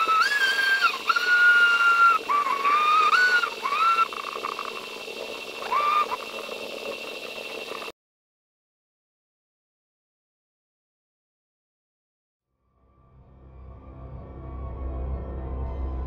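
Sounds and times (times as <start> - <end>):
whistling tones with slides: 0.0 - 4.6
steady hum: 0.0 - 7.9.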